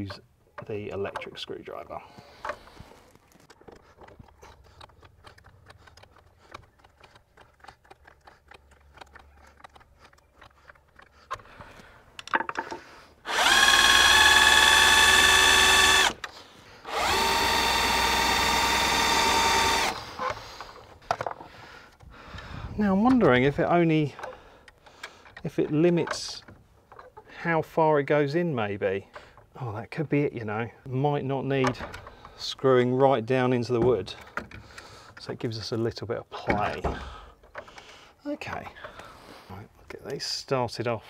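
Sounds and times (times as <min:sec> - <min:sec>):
electric screwdriver motor whining: 0:13.2 - 0:16.3, 0:16.9 - 0:20.3.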